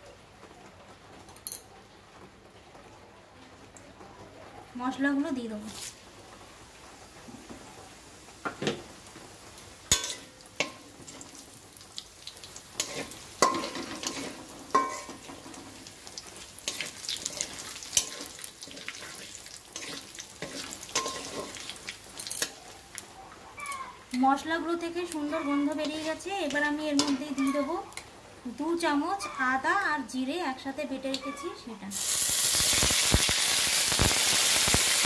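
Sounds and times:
spices sizzling in hot oil: 5.2 - 35.0
metal spatula scraping pan: 9.9 - 11.2, 12.8 - 15.8, 16.6 - 22.6, 25.2 - 27.8.

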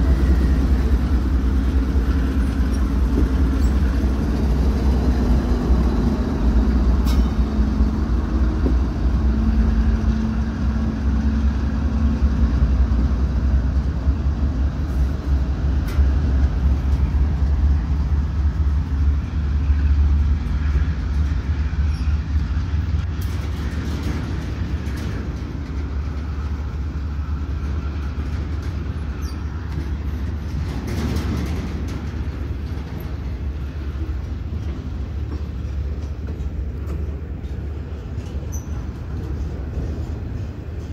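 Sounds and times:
freight cars rolling by: 0.0 - 40.9
locomotive engine rumble: 0.0 - 40.9
train wheels clacking: 0.0 - 40.9.

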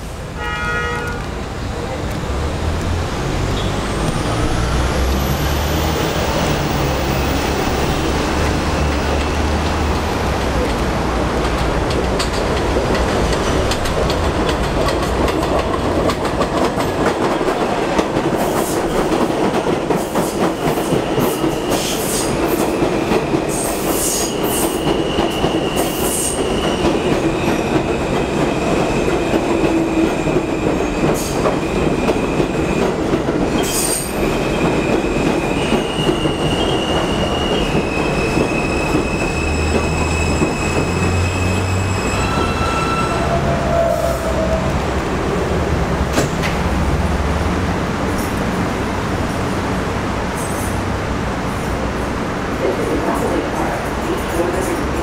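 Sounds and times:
train wheels rumbling and clacking: 1.0 - 55.0
train brakes squealing: 3.5 - 8.1, 20.2 - 29.0, 33.6 - 44.7.

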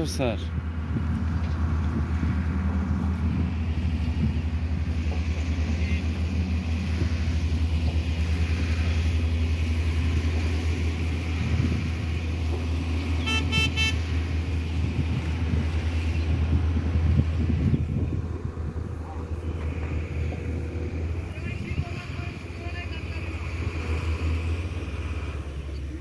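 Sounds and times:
vehicle horn tooting: 13.2 - 14.2.

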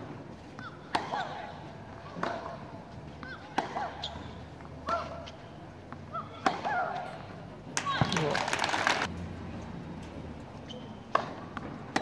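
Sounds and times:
tennis ball hit by racket: 0.9 - 1.4, 2.1 - 2.6, 11.1 - 12.0.

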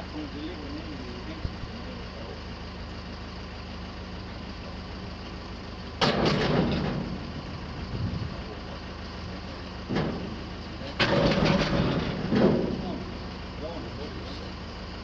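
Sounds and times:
drum cage lifting open: 9.9 - 10.4.

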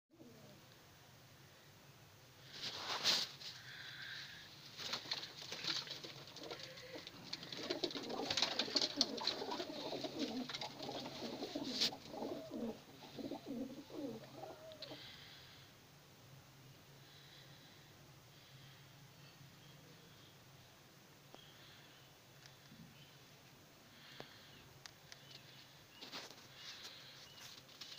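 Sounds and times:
pigeons cooing: 0.2 - 0.6, 5.0 - 15.2
rustles and clicks: 2.5 - 3.6, 4.6 - 12.6, 25.1 - 27.9.

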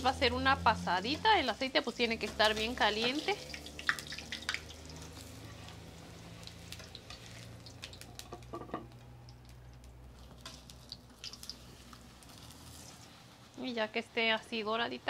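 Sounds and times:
oil crackling: 0.0 - 13.9
tortillas sizzling in oil: 0.0 - 15.0
metal spatula scraping: 0.9 - 3.4, 11.5 - 13.4.

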